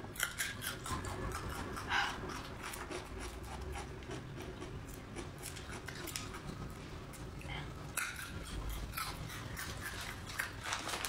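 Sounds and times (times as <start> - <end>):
garlic skin crackling and rustling: 9.8 - 11.0.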